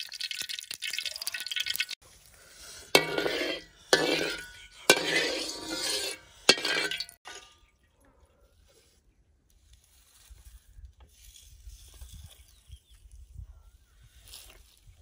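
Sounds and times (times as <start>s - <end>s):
oil crackling: 0.0s - 3.5s
metal spatula scraping a wok: 2.4s - 7.5s.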